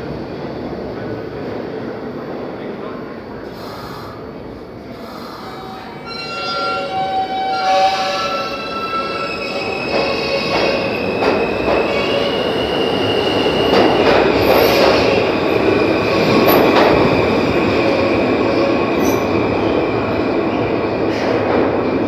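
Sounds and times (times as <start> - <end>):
subway cars rumbling: 0.0 - 22.0
train wheels squealing: 5.2 - 17.4, 19.0 - 19.4.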